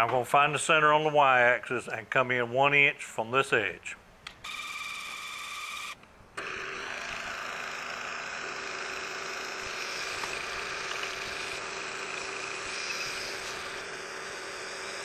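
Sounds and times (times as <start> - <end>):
milling machine spindle motor humming: 4.4 - 15.0.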